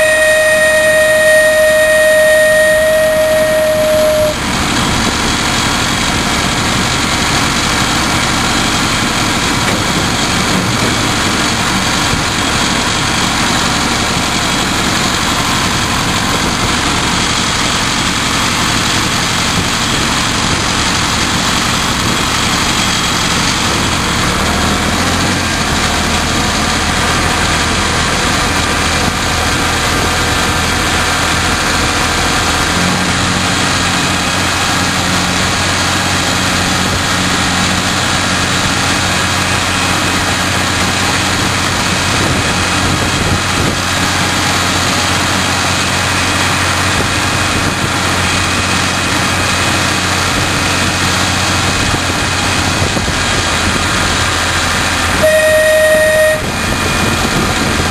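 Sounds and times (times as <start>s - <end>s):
train horn: 0.0s - 5.2s, 55.0s - 57.2s
diesel locomotive engine running: 0.0s - 57.9s
wheel and wind rush: 0.0s - 57.9s.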